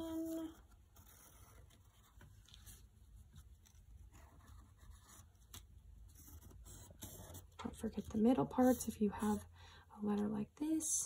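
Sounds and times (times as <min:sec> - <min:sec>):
pencil scratching on paper: 0:06.1 - 0:09.4.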